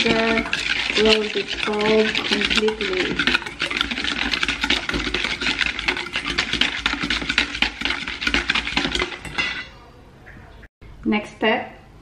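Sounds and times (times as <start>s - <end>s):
whisk clicking in metal bowl: 0.0s - 9.6s.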